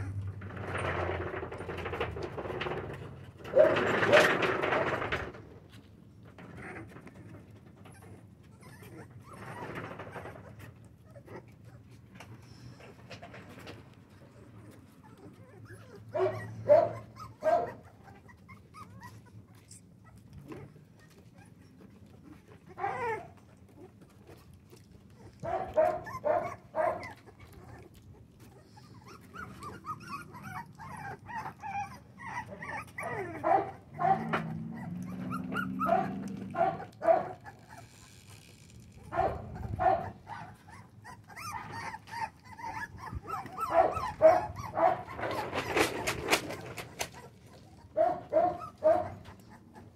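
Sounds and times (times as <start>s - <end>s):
puppies whining and yipping: 6.1s - 49.9s.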